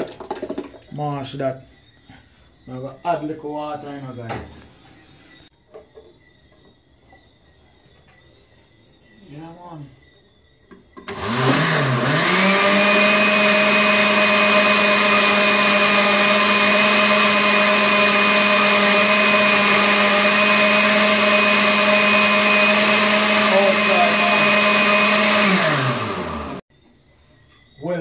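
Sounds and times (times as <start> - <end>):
blender motor whining: 11.0 - 26.6.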